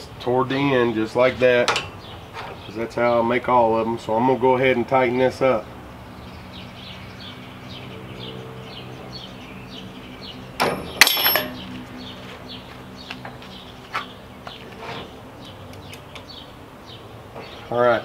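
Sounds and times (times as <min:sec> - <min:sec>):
bird chirping: 0:01.8 - 0:18.0
metal clinking and rattling: 0:10.6 - 0:11.7.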